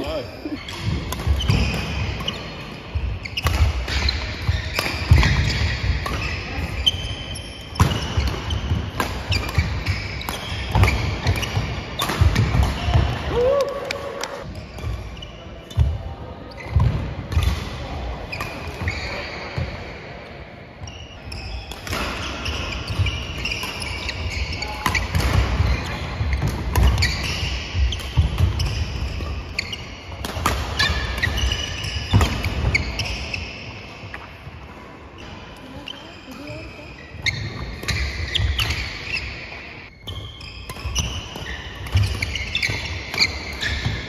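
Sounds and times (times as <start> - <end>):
rackets striking shuttlecock: 0.7 - 13.2, 21.6 - 33.4.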